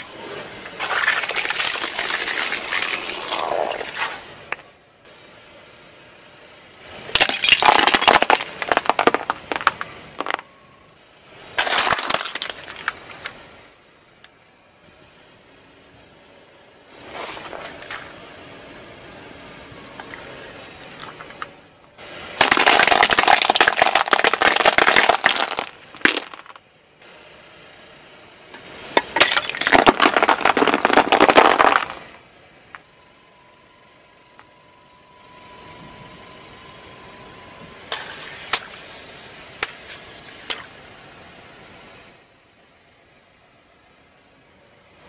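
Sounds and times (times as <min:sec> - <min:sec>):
tyre crunching brittle objects: 0:00.7 - 0:04.2, 0:11.6 - 0:13.3, 0:22.4 - 0:26.6, 0:29.2 - 0:32.1
faint steady tone: 0:09.3 - 0:11.6, 0:12.6 - 0:22.4, 0:32.0 - 0:45.0.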